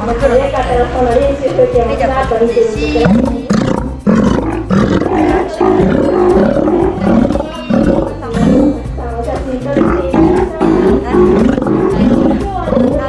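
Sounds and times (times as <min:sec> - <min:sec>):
sea lion roaring: 0:03.0 - 0:08.9, 0:09.8 - 0:13.0.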